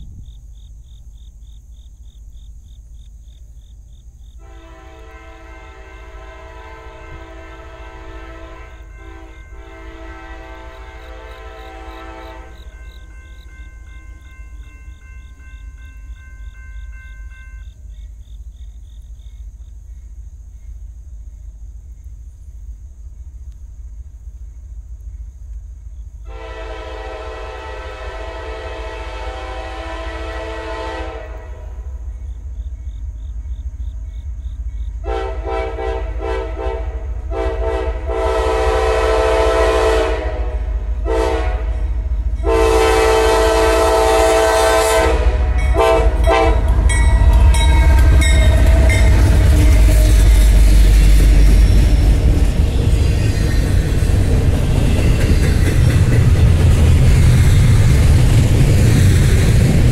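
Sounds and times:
locomotive air horn: 0:04.4 - 0:12.9, 0:26.3 - 0:31.8, 0:35.0 - 0:51.3
locomotives rumbling past: 0:31.4 - 0:59.9
freight cars clattering over rails: 0:46.2 - 0:59.9.

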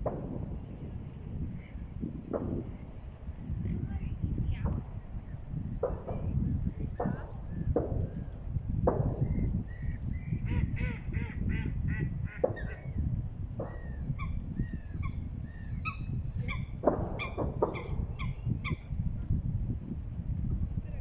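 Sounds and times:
low rumble: 0:00.0 - 0:21.0
waterfowl honking: 0:10.4 - 0:13.0.

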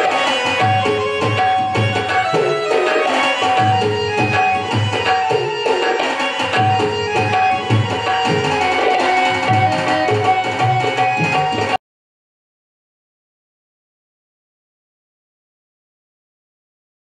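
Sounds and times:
sustained melody line: 0:00.0 - 0:11.8
tabla playing a steady rhythm: 0:00.0 - 0:11.8.

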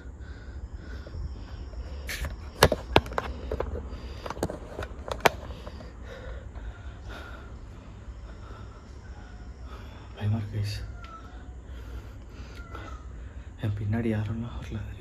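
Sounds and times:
steady low rumble: 0:00.0 - 0:15.0
sharp clicks and knocks: 0:02.1 - 0:05.9.

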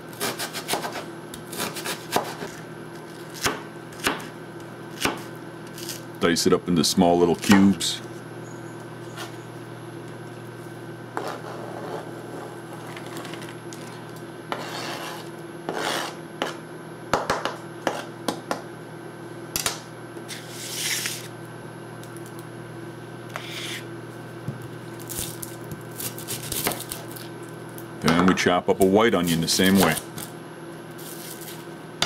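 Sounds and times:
knife scraping cutting board: 0:00.1 - 0:03.4, 0:11.2 - 0:16.6, 0:17.8 - 0:18.1, 0:20.3 - 0:21.3, 0:23.3 - 0:23.9.

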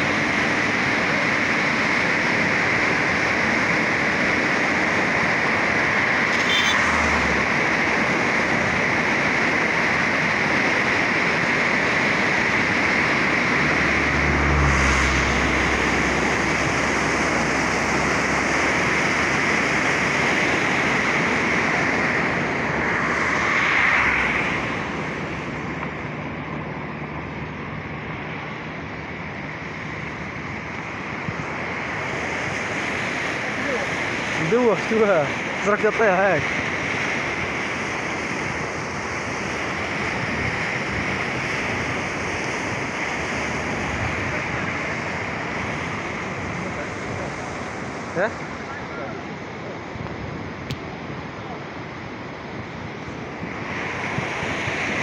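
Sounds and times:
floodwater rushing: 0:00.0 - 0:55.0
wind buffeting microphone: 0:36.4 - 0:55.0.

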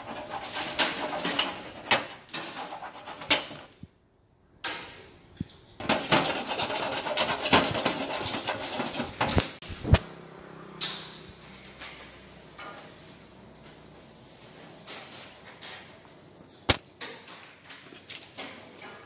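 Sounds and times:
hard object scraping steel panel: 0:00.0 - 0:03.8, 0:05.8 - 0:10.1.

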